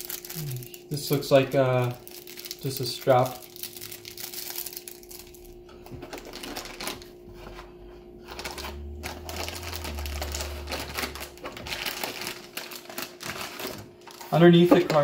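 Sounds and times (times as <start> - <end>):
plastic packaging crinkling: 0.0 - 7.2, 8.2 - 15.0
low rumble: 5.1 - 13.0.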